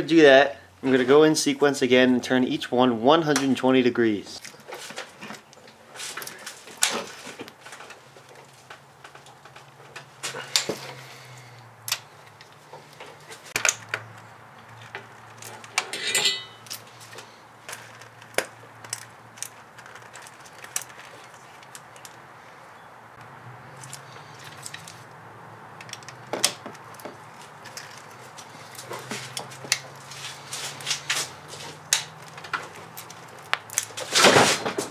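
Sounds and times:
hand tools clicking on metal: 14.7s - 22.2s, 30.8s - 34.0s.

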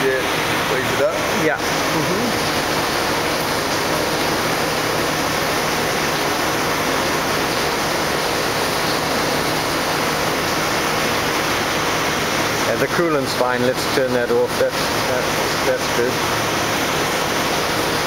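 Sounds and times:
grinder with coolant spray: 0.0s - 2.6s.

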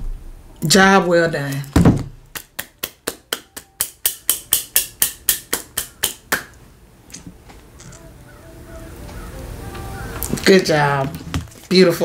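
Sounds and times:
person clapping hands: 2.3s - 6.6s.

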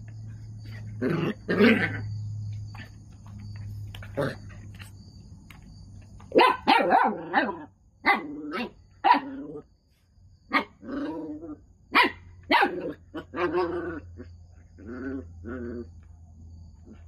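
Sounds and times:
dog barking: 6.3s - 9.5s, 10.5s - 11.2s, 11.9s - 13.8s.

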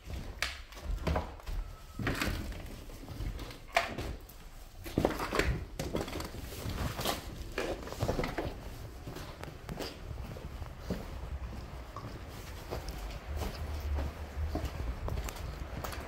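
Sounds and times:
footsteps scuffing on rubble: 4.2s - 16.0s.

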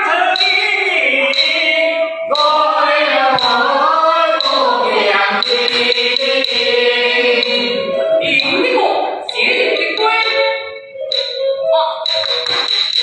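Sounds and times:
unaccompanied opera singing: 0.0s - 13.0s
sharp wooden knocks: 12.1s - 13.0s.

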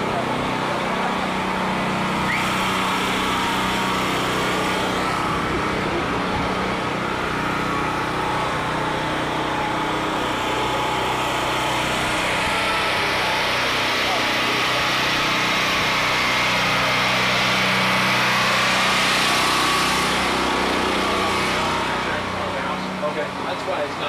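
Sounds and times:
generator engine running: 0.0s - 24.0s.

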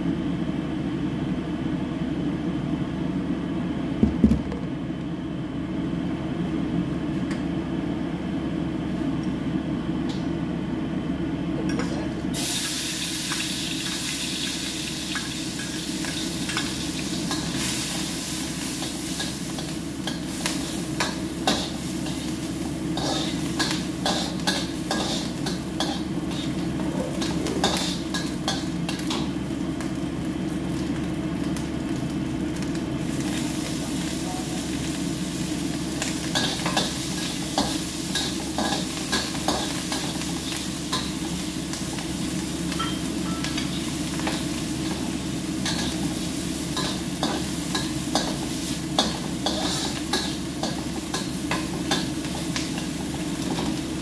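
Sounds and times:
food sizzling: 12.2s - 54.0s
metal spatula scraping a wok: 23.0s - 26.6s, 49.0s - 50.4s.

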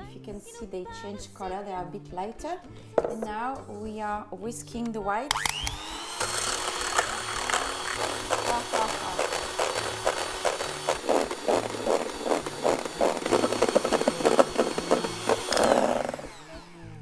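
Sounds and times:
hand mixer motor whine: 5.3s - 17.0s.

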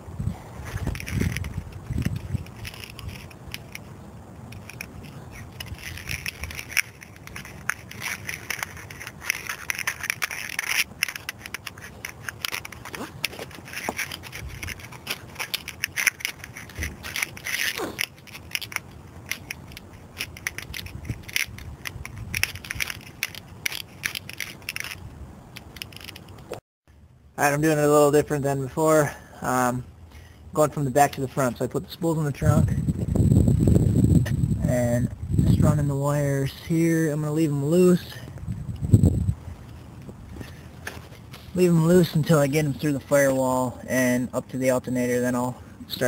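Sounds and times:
plastic tubing and cable scraping: 0.3s - 3.9s, 4.5s - 26.6s.

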